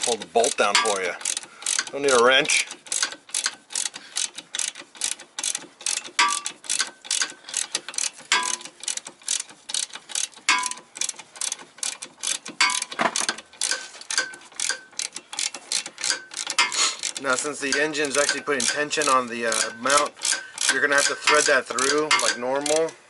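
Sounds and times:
hand ratchet clicking: 0:00.0 - 0:23.0.

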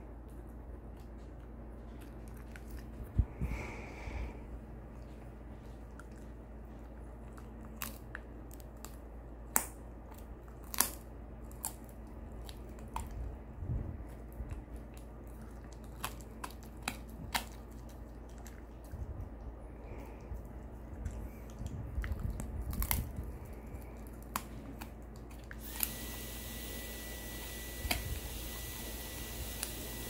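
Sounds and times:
dog crunching a chew treat: 0:00.0 - 0:03.4, 0:04.8 - 0:30.0.

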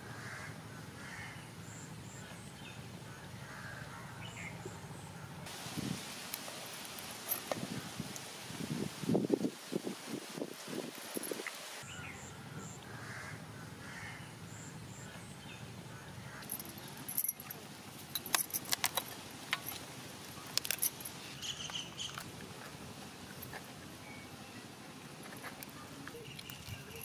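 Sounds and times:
birds chirping and calling: 0:11.8 - 0:27.0
crab shells cracking: 0:18.2 - 0:21.0.

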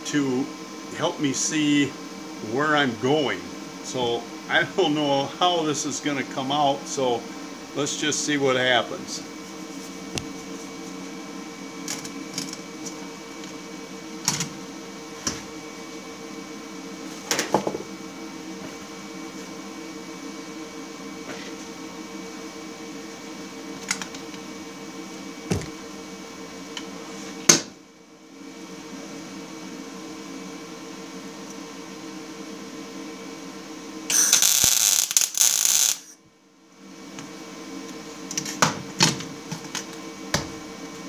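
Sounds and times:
machine hum: 0:21.8 - 0:26.9, 0:28.3 - 0:36.2.

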